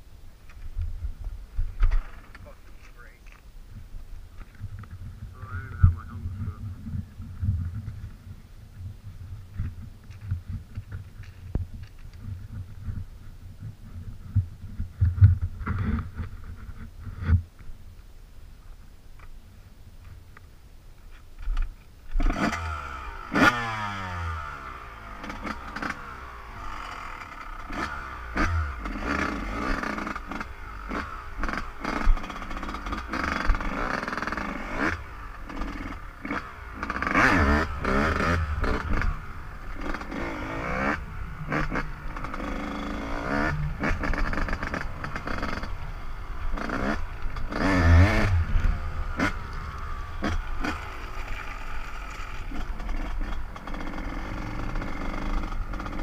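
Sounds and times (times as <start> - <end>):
dirt bike engine revving: 22.1 - 56.0.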